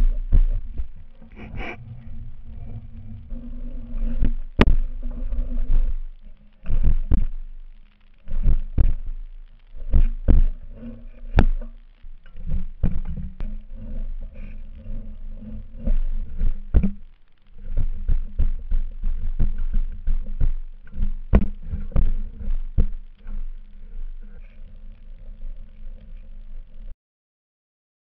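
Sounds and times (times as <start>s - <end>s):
low rumble: 0.0s - 26.9s.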